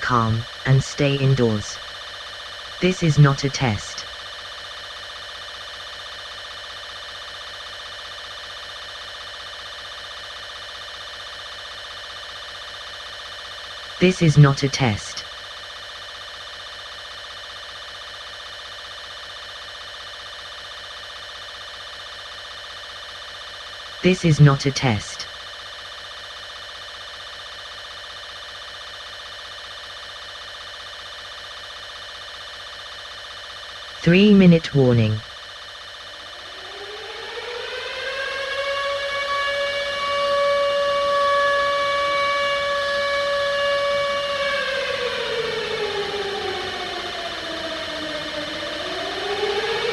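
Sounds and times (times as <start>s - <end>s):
electronic warning tone: 0.0s - 1.8s, 2.8s - 4.0s, 14.0s - 15.2s, 24.0s - 25.2s, 34.0s - 35.2s
electronic warning drone: 0.0s - 49.9s.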